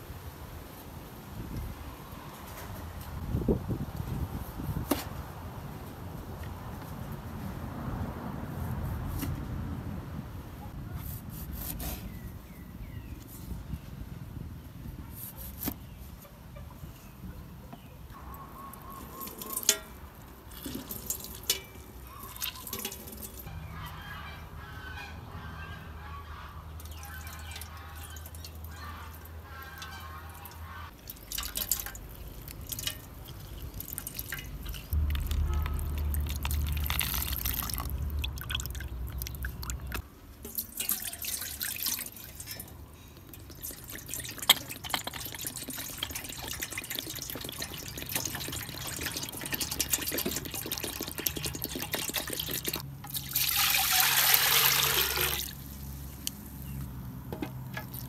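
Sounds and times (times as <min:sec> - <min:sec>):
juice poured into a metal pot: 0:20.5 - 0:21.7, 0:29.8 - 0:56.3
juice dripping into a bowl: 0:31.0 - 0:56.4.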